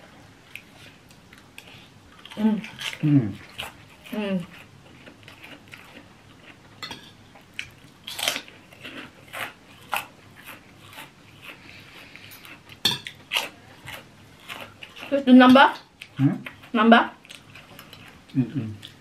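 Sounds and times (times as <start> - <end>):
spoon and fork clinking on bowl: 6.8 - 7.2
crackers crunching: 7.4 - 15.2.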